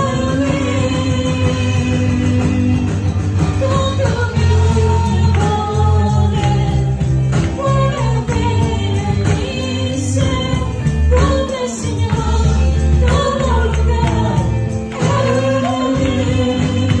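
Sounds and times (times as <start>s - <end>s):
band playing worship music: 0.0s - 17.0s
steady percussion beat: 0.0s - 17.0s
singers holding long notes: 7.6s - 17.0s.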